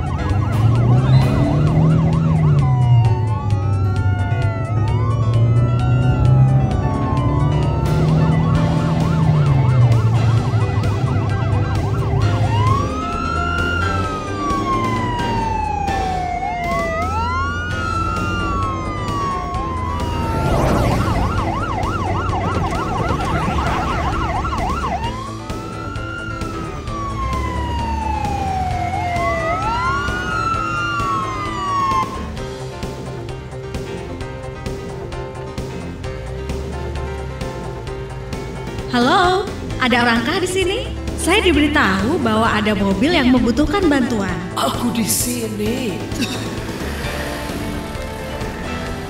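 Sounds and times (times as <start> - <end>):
ambulance siren wail and yelp: 0.0 - 34.3
background music: 0.0 - 49.0.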